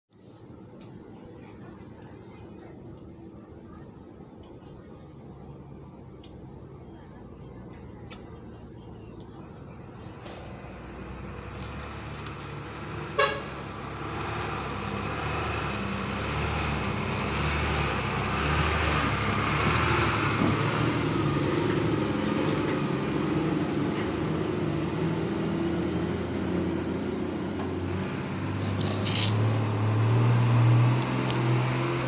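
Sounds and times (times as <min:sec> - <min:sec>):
truck engine driving past: 0:06.1 - 0:32.0
short horn toot: 0:13.1 - 0:13.5.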